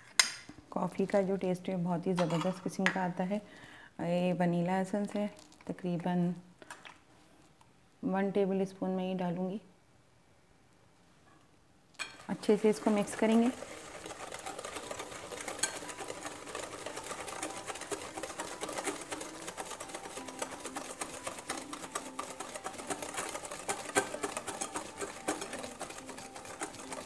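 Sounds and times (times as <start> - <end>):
whisk clicking against glass bowl: 12.0 - 27.0.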